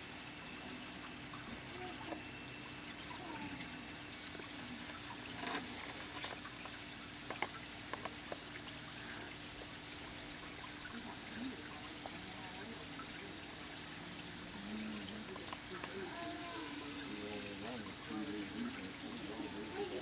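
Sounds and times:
hummingbird chirps and ticks: 9.5 - 12.2.

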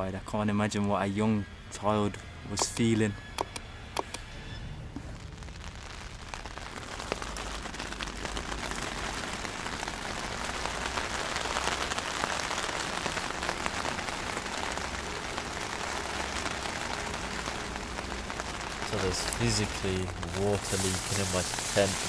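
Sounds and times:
rain falling on a tent: 4.9 - 22.0.

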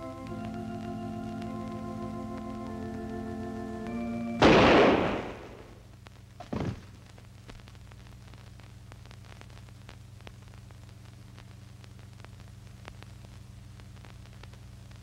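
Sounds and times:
film crackle and clicks: 0.0 - 15.0.

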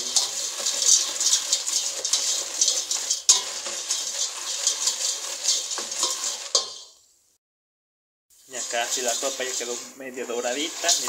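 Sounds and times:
pasta rattling against metal pot: 0.0 - 6.9, 8.5 - 11.0
pasta sizzling in oil: 0.0 - 7.1, 8.3 - 11.0.

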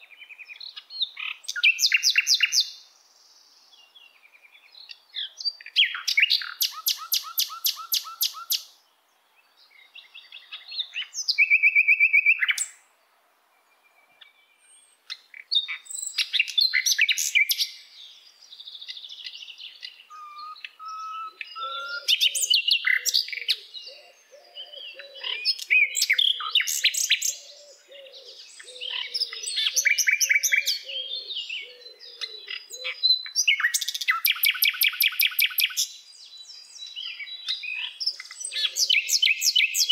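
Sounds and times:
songbirds trilling and chirping: 0.0 - 39.9
lower warbling bird call: 5.9 - 8.7, 19.9 - 33.0.

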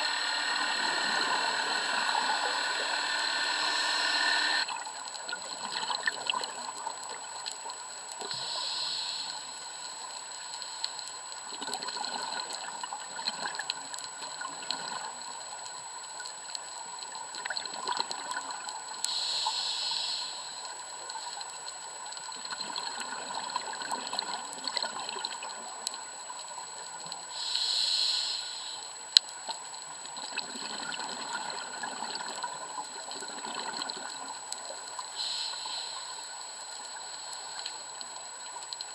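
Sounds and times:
scuba regulator bubbles: 0.0 - 8.8, 11.4 - 15.3, 22.3 - 26.0, 30.1 - 35.9
underwater crackle and hiss: 0.0 - 38.9.

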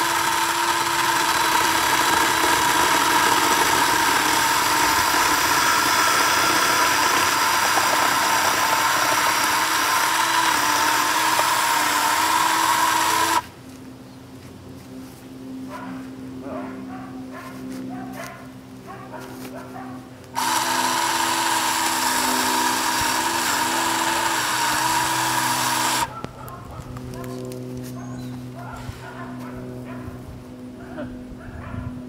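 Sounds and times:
chain rasping through wood: 0.0 - 13.4, 20.4 - 26.2
electric chainsaw whine: 0.0 - 13.6, 20.2 - 26.2.

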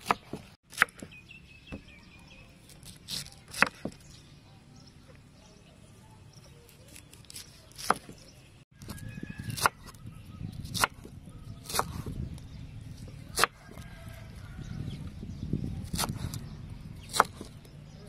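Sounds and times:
knife cutting fruit: 2.5 - 4.2, 6.5 - 14.1, 15.7 - 17.8.

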